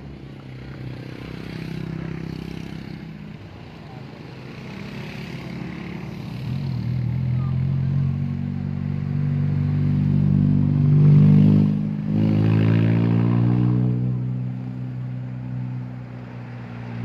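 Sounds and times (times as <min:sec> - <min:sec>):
vehicle engine accelerating: 0:03.8 - 0:17.0.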